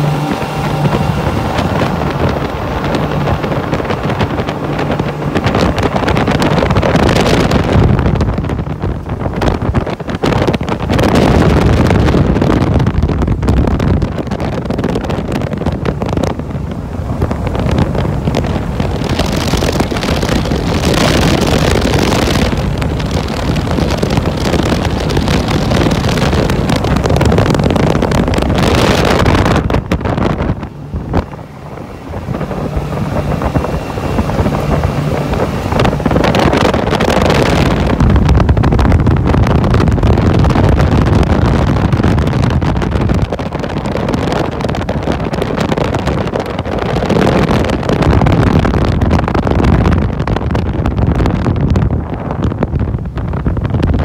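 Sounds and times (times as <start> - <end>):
outboard motors running at speed: 0.0 - 54.0
wind buffeting microphone: 0.0 - 54.0.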